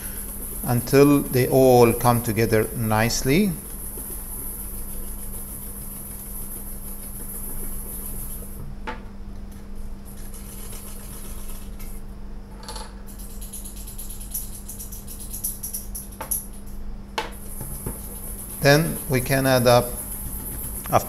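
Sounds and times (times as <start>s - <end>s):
whisk scraping metal bowl: 0.0s - 8.5s, 17.6s - 21.0s.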